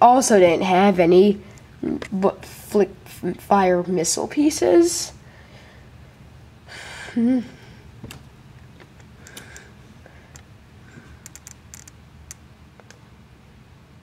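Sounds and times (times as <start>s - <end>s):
person breathing: 5.2s - 7.9s, 9.2s - 11.4s.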